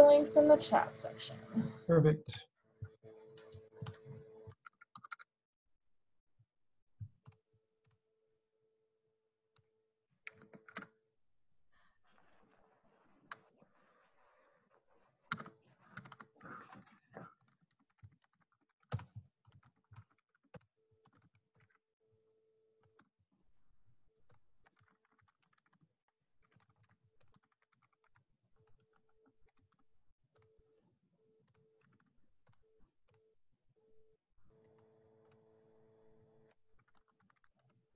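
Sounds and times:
typing on computer keyboard: 3.3s - 5.3s, 10.3s - 11.0s, 15.3s - 16.8s, 17.4s - 21.8s, 24.3s - 29.8s, 31.4s - 33.2s, 36.8s - 37.9s.

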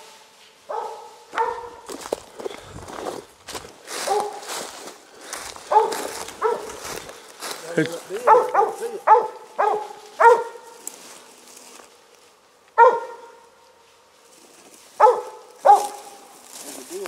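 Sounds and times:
dog barking: 0.7s - 2.0s, 4.0s - 4.5s, 5.6s - 6.9s, 8.2s - 10.8s, 12.8s - 13.5s, 15.0s - 16.2s.

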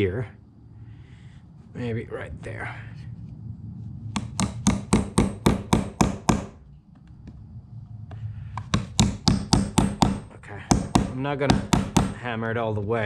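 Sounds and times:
hammer striking nails: 4.2s - 6.6s, 8.6s - 12.3s.

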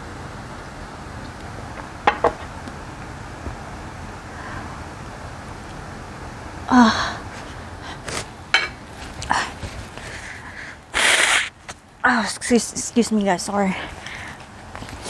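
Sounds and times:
woman gasping: 6.7s - 8.0s
woman blowing her nose: 10.9s - 11.6s
breathy sniffs: 11.0s - 11.5s.

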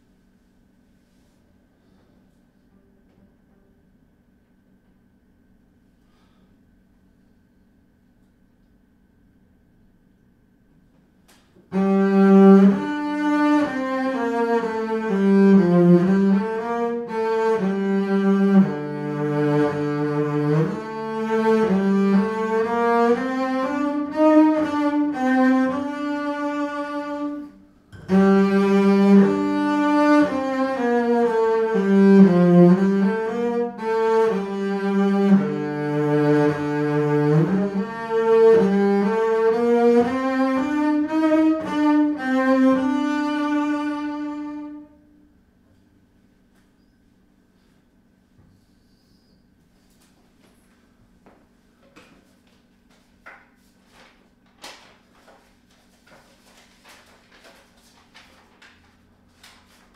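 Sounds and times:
bowed double bass: 11.6s - 45.0s.

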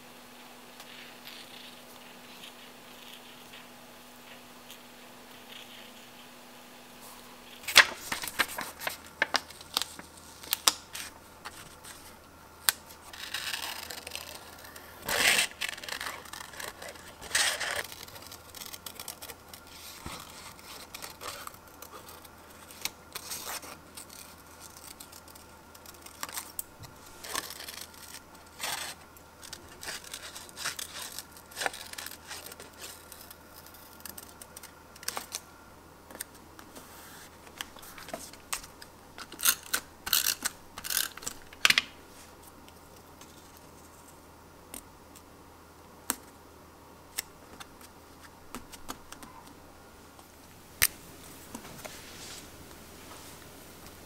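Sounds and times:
paper rustling: 7.0s - 12.2s, 12.9s - 35.4s.

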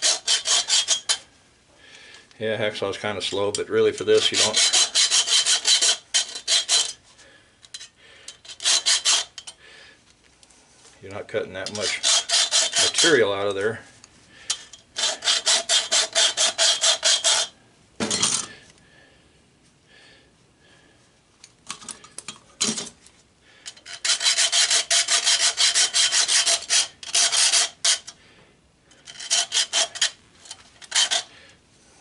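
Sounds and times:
hacksaw cutting copper tube: 0.0s - 1.2s, 3.3s - 7.0s, 7.8s - 9.6s, 11.6s - 13.3s, 14.5s - 17.6s, 23.7s - 28.2s, 28.9s - 31.3s.

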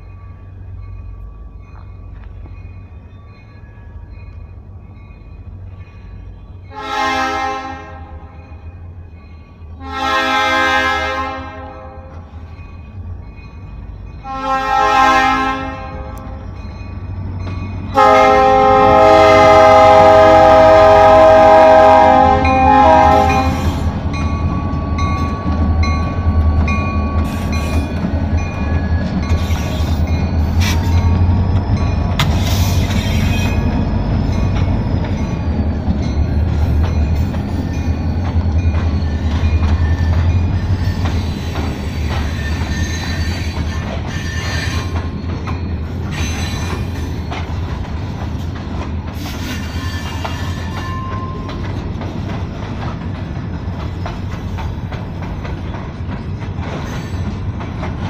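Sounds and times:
train wheels rumbling on rail: 0.0s - 58.0s
thin wheel squeals: 38.9s - 45.0s, 49.2s - 51.1s.

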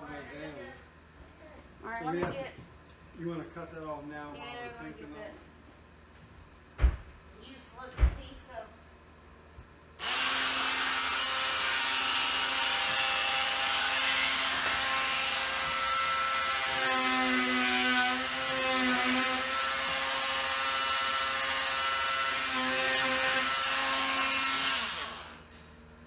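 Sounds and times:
oscillating multi-tool cutting wood: 10.0s - 25.6s.

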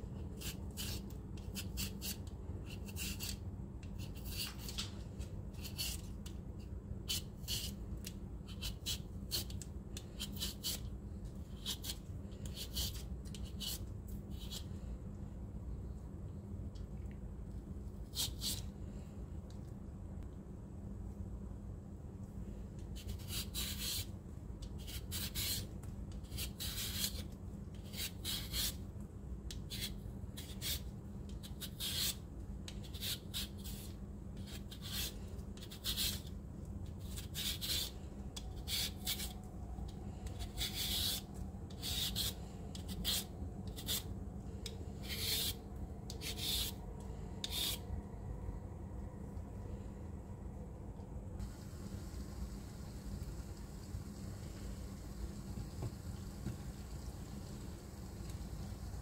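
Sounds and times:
peeler scraping potato skin: 0.3s - 3.4s, 7.1s - 10.9s, 11.5s - 14.7s, 23.0s - 24.1s, 24.8s - 28.8s, 29.5s - 36.3s, 37.0s - 39.4s, 40.3s - 44.1s, 45.0s - 46.8s, 47.4s - 47.8s.

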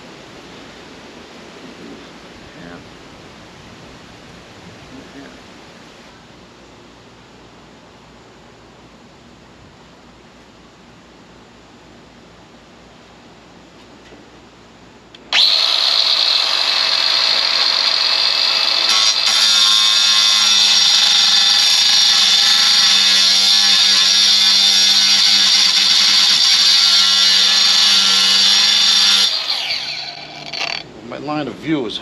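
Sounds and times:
power drill drilling through sheet metal: 15.3s - 30.8s.

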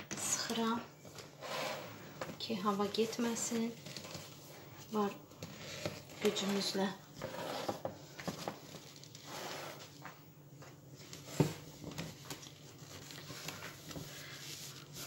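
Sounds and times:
cloth rustling: 10.8s - 15.0s.

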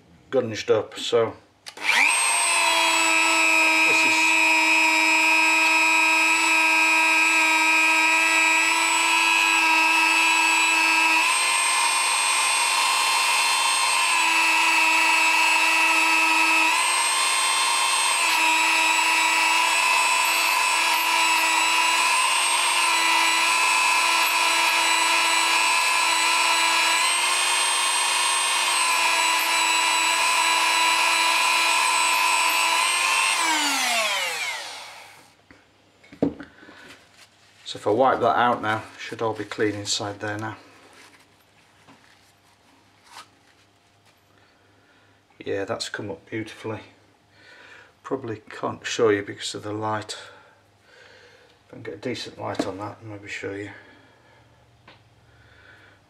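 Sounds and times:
rotary tool whining: 1.7s - 35.4s.

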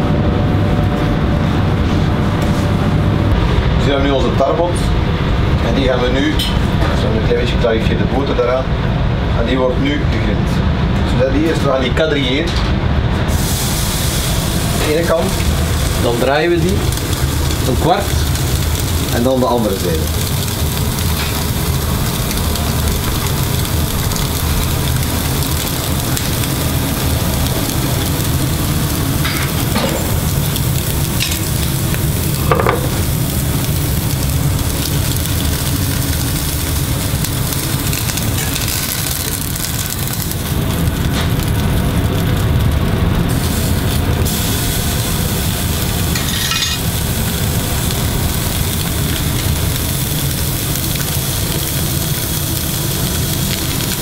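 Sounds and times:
steady low hum: 0.0s - 54.0s
fish sizzling on a grill plate: 13.3s - 54.0s.

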